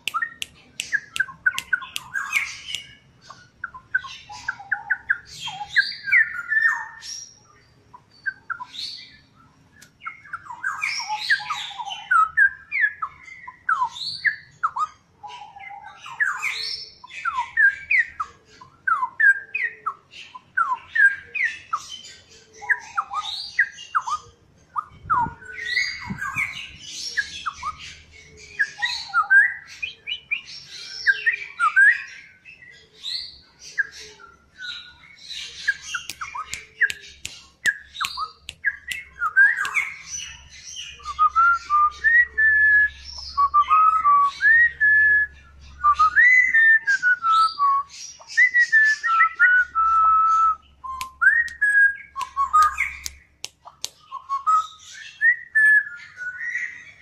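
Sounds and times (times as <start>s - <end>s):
bird singing whistled phrases: 34.6s - 57.0s.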